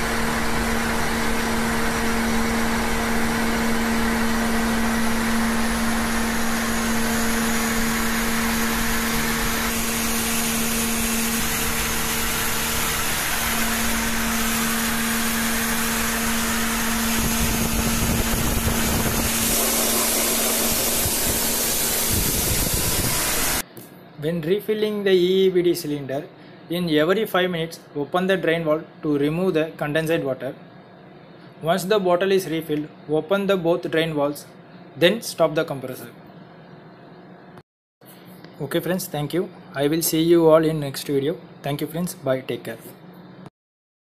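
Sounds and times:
air compressor humming: 0.0s - 23.8s.

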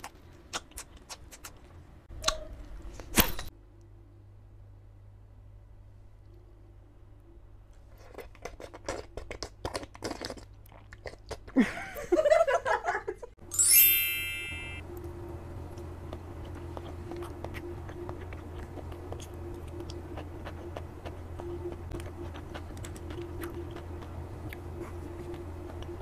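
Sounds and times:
crunching and chewing: 0.0s - 1.8s, 7.8s - 11.6s, 15.0s - 26.0s
sparkling chime: 13.5s - 14.8s
steady low hum: 14.1s - 26.0s.

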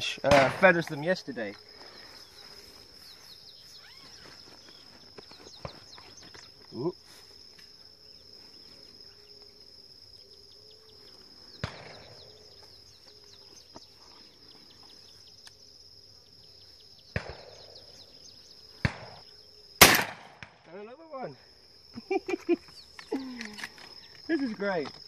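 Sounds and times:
insects buzzing: 0.0s - 25.0s
shotgun shots: 0.3s - 0.6s, 19.8s - 20.7s.

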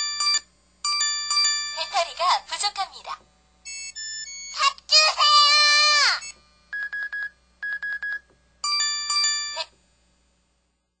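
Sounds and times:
multi-note phone chime: 0.0s - 1.9s, 3.6s - 4.6s, 6.2s - 9.7s
rapid phone beeps: 3.7s - 4.6s, 6.2s - 9.6s.

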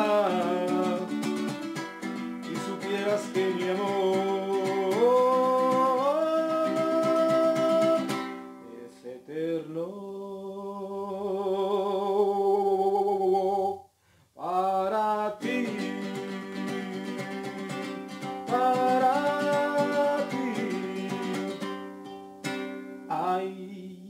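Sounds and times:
strummed guitar: 0.0s - 9.0s, 15.2s - 23.7s
person singing with vibrato: 0.0s - 24.0s.

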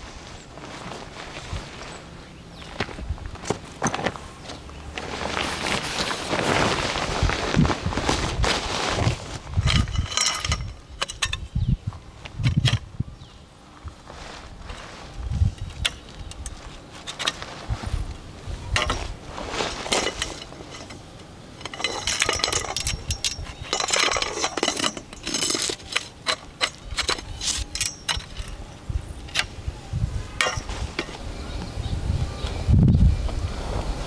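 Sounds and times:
gear handling noise: 0.6s - 13.0s, 13.8s - 29.6s, 30.2s - 31.8s
metal clinks and knocks: 9.6s - 11.6s, 19.8s - 29.5s, 30.4s - 31.2s.

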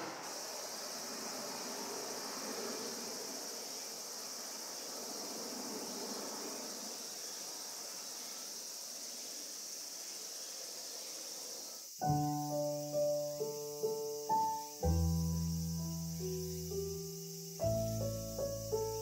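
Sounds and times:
jet airliner rumble overhead: 0.0s - 7.9s
crickets chirring: 0.0s - 19.0s.

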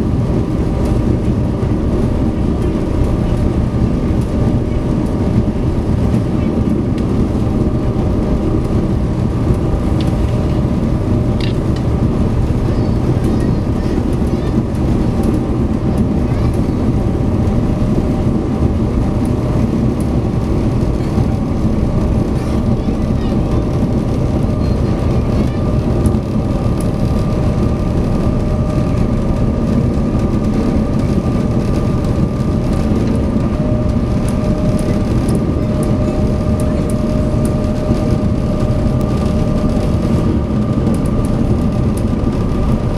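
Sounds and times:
ferry engines droning: 0.0s - 42.9s.

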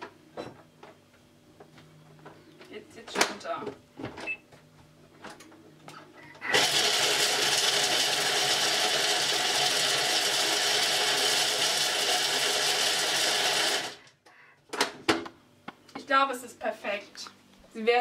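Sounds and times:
food processor chopping chocolate: 6.4s - 14.1s.

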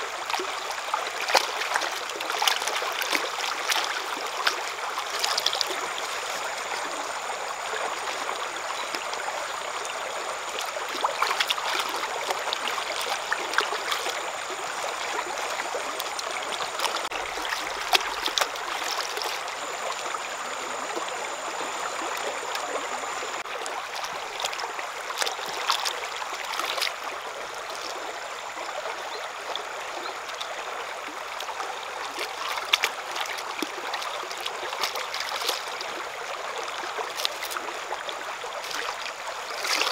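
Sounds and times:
stream running over rocks: 0.0s - 39.9s
hands splashing in water: 15.4s - 19.5s, 32.1s - 35.8s, 38.6s - 39.9s.

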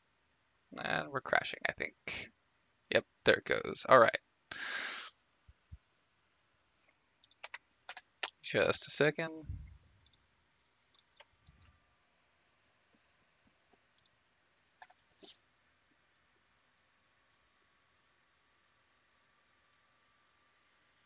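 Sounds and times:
computer mouse clicks: 7.2s - 8.4s, 10.0s - 19.0s.

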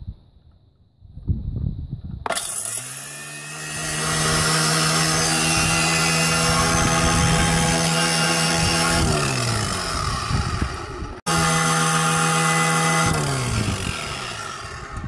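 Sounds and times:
motor whine: 2.3s - 15.0s.

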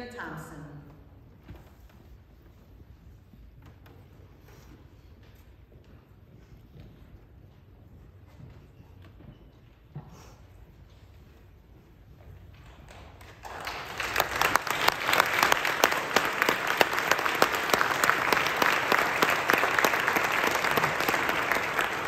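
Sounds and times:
audience applauding: 12.6s - 22.0s.

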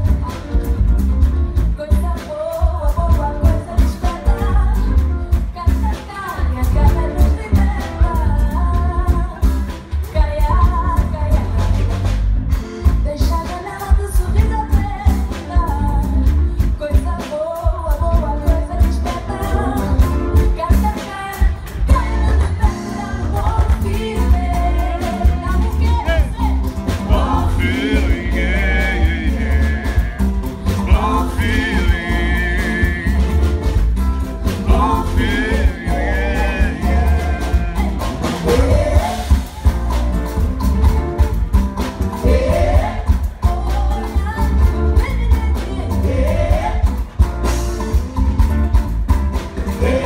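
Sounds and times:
heavy bass: 0.0s - 17.2s, 17.8s - 50.0s
acoustic guitar: 0.0s - 50.0s
woman singing: 1.6s - 12.0s, 13.0s - 30.1s, 34.5s - 39.7s, 42.2s - 47.1s.

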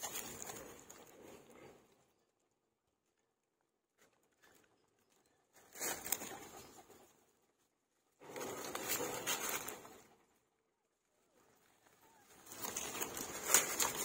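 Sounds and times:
rustling: 3.9s - 7.2s, 8.2s - 10.3s, 11.3s - 14.0s.

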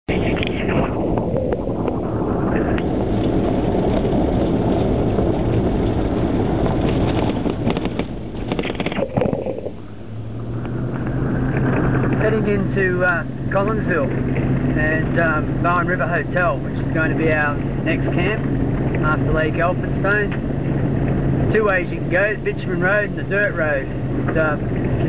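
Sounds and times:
vehicle engine hum: 0.0s - 25.0s
stones crackling under tyres: 2.7s - 9.8s.

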